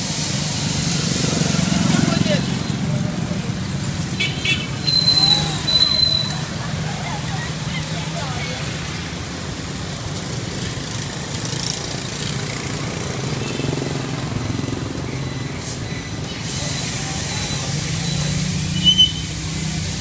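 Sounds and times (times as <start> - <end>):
motorbike and car engines passing: 0.2 - 20.0.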